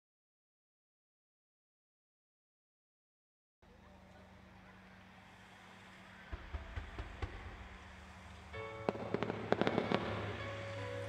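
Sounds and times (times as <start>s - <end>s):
low thumps of fireworks: 6.3s - 10.7s
sharp cracks of bursting shells: 6.3s - 10.8s.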